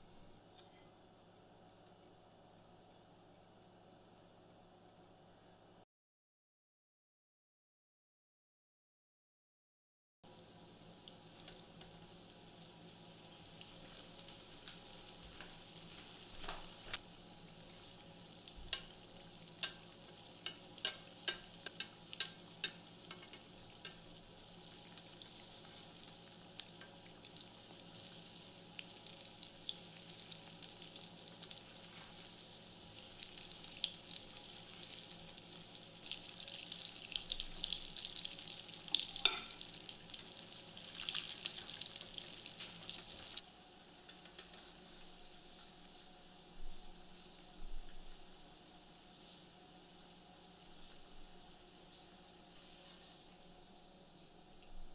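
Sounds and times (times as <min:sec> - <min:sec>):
fritters deep-frying in oil: 0:10.3 - 0:46.5.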